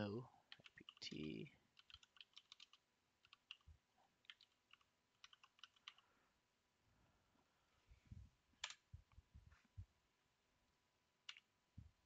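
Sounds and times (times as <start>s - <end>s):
typing on keyboard: 0.5s - 1.1s, 1.7s - 6.0s.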